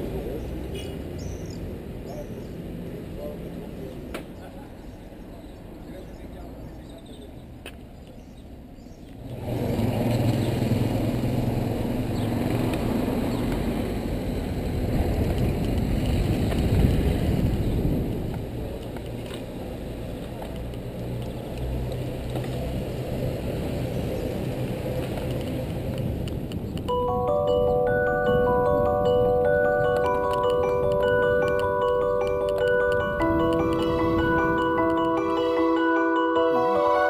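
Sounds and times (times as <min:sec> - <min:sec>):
traffic noise: 0:00.0 - 0:37.0
vehicle engine humming: 0:09.1 - 0:37.0
wind on microphone: 0:14.4 - 0:18.8.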